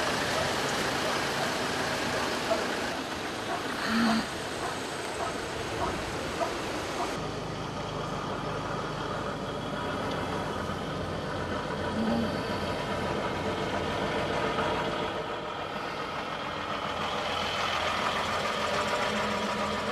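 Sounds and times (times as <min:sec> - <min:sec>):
car engine idling inside cabin: 0:07.6 - 0:19.9.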